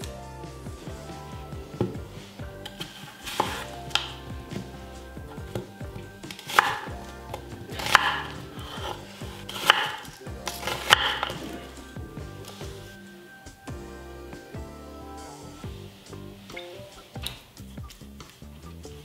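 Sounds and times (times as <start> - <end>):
knife cutting onions on board: 2.7 - 4.7, 6.3 - 11.7.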